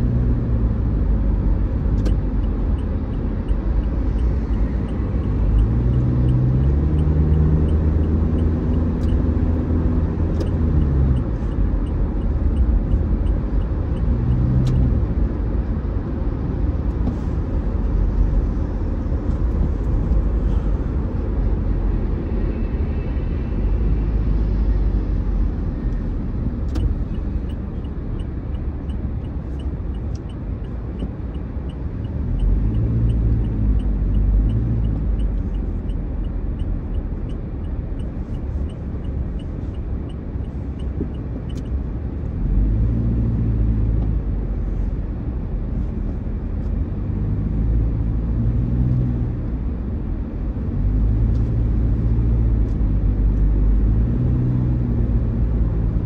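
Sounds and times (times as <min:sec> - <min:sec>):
car road and engine rumble: 0:00.0 - 0:56.0
turn signal ticking: 0:01.6 - 0:15.1, 0:25.9 - 0:42.4.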